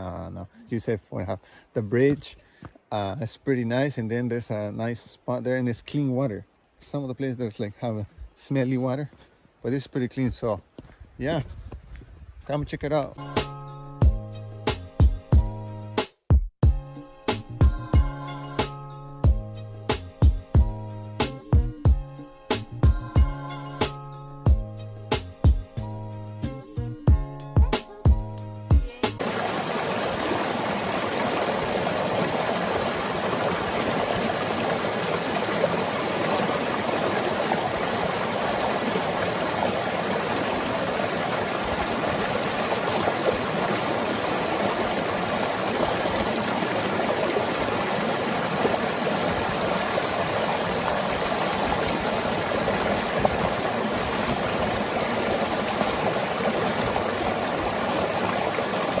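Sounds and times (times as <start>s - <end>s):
creek water over boulders: 29.1s - 59.0s.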